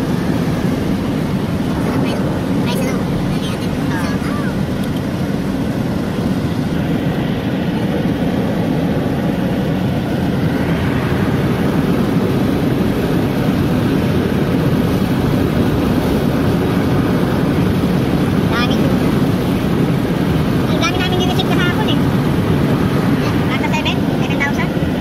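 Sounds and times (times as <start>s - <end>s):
car interior road noise: 0.0s - 25.0s.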